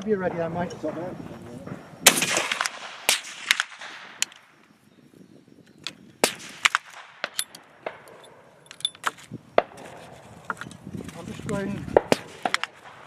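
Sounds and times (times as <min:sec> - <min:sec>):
rifle shot ringing: 0:02.0 - 0:04.3, 0:06.2 - 0:08.4.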